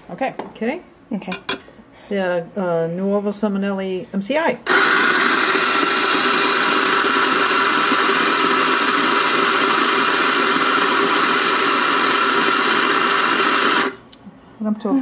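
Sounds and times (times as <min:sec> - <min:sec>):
coffee grinder whirring: 0:04.7 - 0:14.0.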